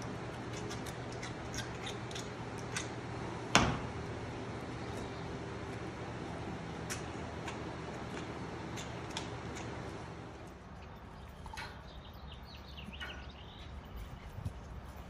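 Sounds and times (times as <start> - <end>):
small birds chirping: 10.8 - 14.8.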